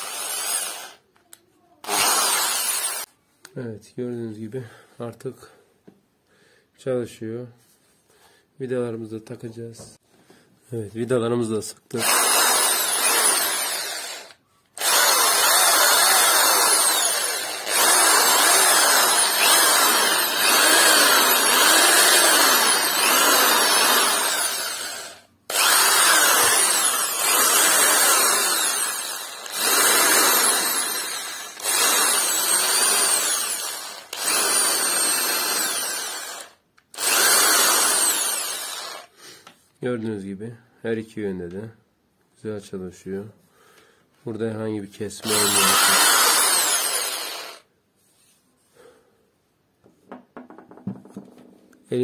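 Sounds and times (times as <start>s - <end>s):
drill motor whining: 0.0s - 1.0s, 1.8s - 3.1s, 12.0s - 39.1s, 45.2s - 47.6s.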